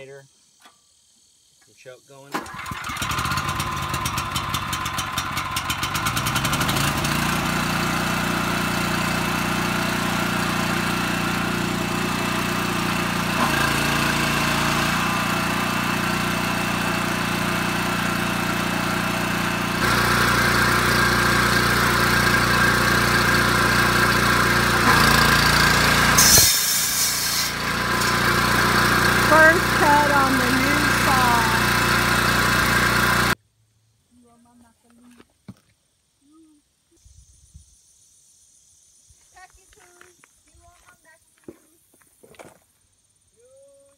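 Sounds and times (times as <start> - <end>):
small generator engine running: 2.3 - 33.4.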